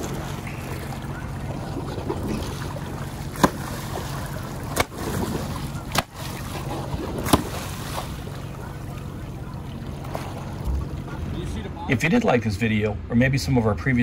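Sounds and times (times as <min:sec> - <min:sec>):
fins splashing water: 0:00.0 - 0:11.8
boat engine idling: 0:00.0 - 0:13.0.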